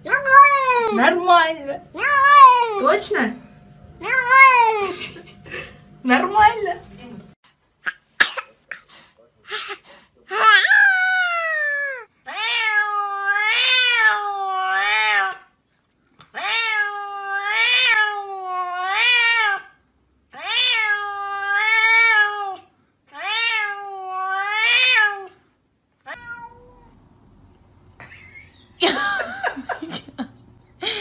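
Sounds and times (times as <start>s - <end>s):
cat meowing: 10.3s - 15.4s, 16.4s - 19.7s, 20.3s - 25.3s, 26.0s - 27.0s.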